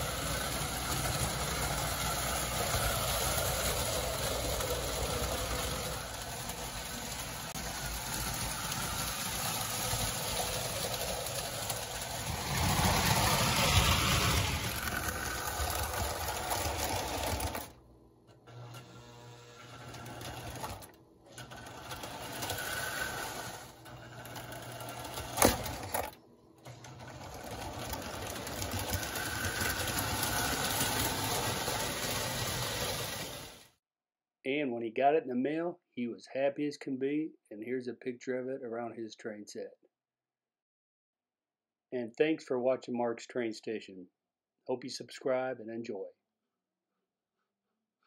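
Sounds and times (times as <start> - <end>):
toy train clattering whir: 0.0 - 17.8, 18.4 - 33.7.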